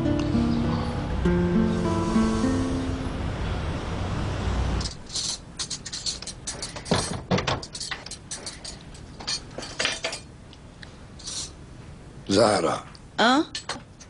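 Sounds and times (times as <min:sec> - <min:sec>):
background music: 0:00.0 - 0:03.8
plates and cutlery clinking: 0:04.8 - 0:10.3.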